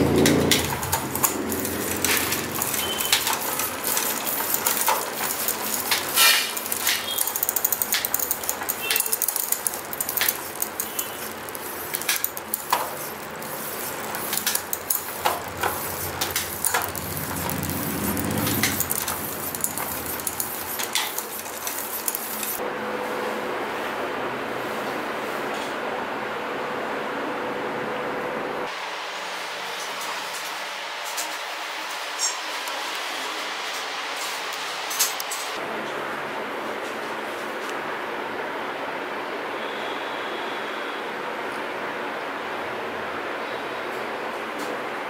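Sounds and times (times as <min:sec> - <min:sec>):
bicycle freewheel ratcheting: 0:00.0 - 0:22.6
chain and sprocket clicks: 0:00.2 - 0:22.6.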